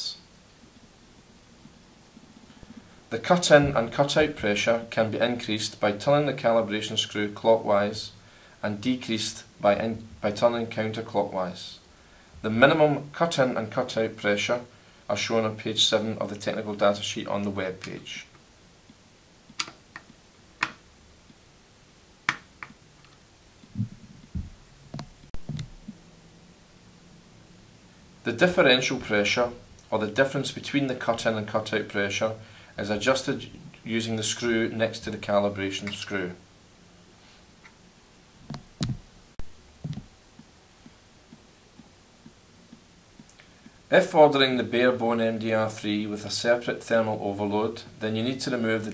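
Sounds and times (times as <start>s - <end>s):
faint light ticks: 39.9s - 43.8s.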